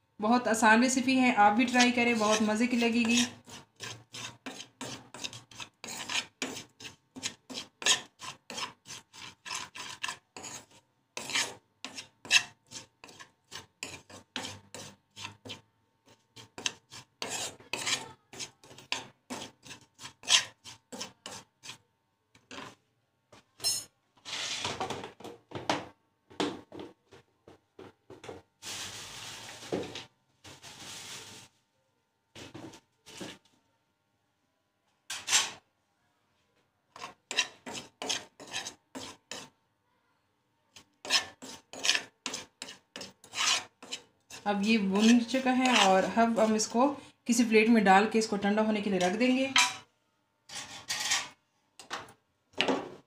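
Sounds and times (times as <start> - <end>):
spoon scraping metal pan: 0.8 - 21.8, 22.4 - 22.8, 35.1 - 35.7, 36.9 - 39.6, 40.7 - 49.9, 50.5 - 52.0.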